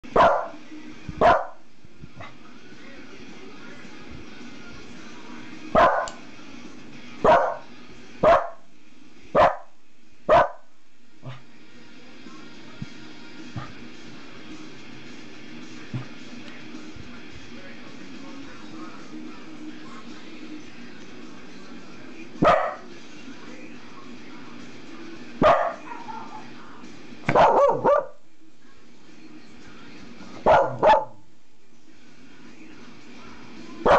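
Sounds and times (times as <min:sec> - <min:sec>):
dog barking: 0:00.2 - 0:00.6, 0:01.2 - 0:01.6, 0:05.8 - 0:06.2, 0:07.2 - 0:08.6, 0:09.4 - 0:09.7, 0:10.3 - 0:11.4, 0:22.4 - 0:22.9, 0:25.4 - 0:26.5, 0:27.3 - 0:28.2, 0:30.4 - 0:31.2.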